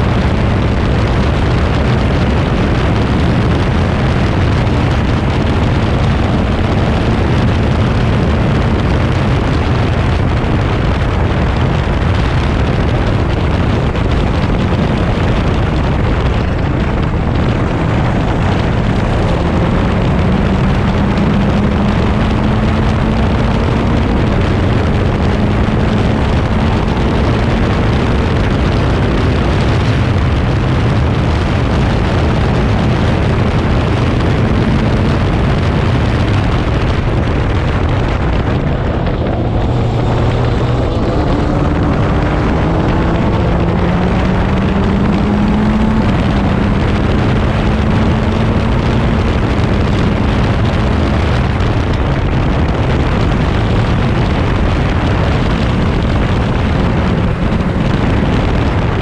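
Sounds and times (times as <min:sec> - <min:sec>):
racing car engine running hard: 0:00.0 - 0:59.0
wind rush on microphone: 0:00.0 - 0:59.0.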